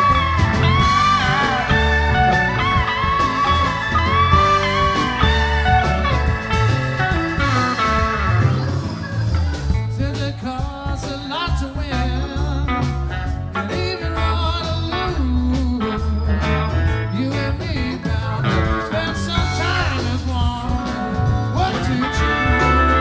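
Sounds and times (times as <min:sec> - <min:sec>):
electric guitar bent notes: 0:00.0 - 0:10.3, 0:20.8 - 0:23.0
live rock band playing: 0:00.0 - 0:23.0.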